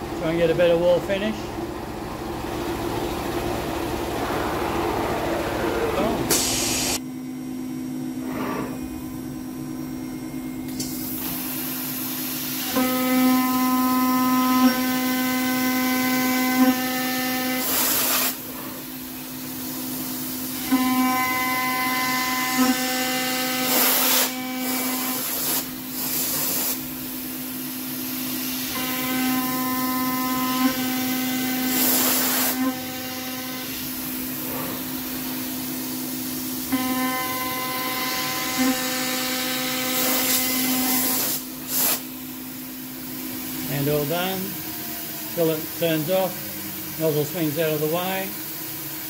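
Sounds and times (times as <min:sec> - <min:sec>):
mill spindle whine with ringing tones: 0:00.0 - 0:17.7, 0:18.4 - 0:23.7, 0:24.3 - 0:25.9, 0:26.9 - 0:49.0
loud hiss: 0:06.3 - 0:07.0
router spindle whine: 0:20.4 - 0:25.3, 0:28.7 - 0:35.2, 0:36.6 - 0:41.2.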